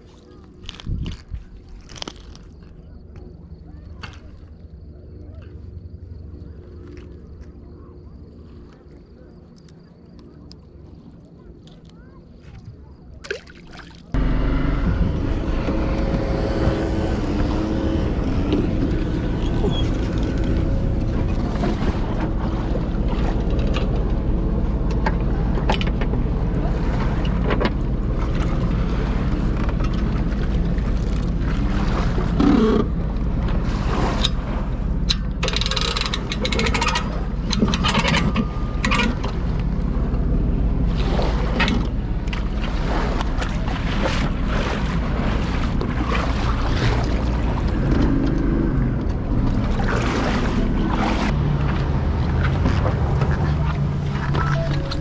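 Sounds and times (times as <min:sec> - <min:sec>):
wind buffeting microphone: 0:00.0 - 0:02.0
engine running steadily: 0:00.0 - 0:55.0.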